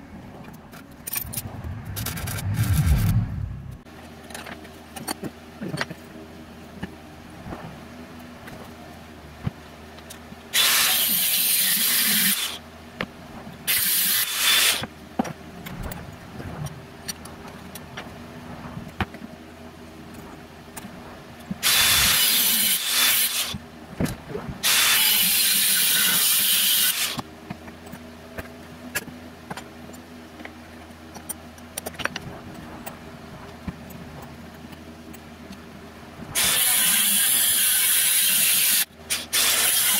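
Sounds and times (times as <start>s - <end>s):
angle grinder cutting steel: 36.4s - 39.9s.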